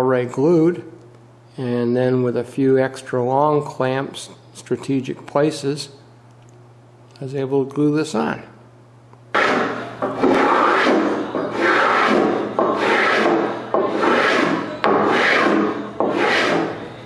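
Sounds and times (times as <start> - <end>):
spokeshave shaving wood: 9.4 - 16.8.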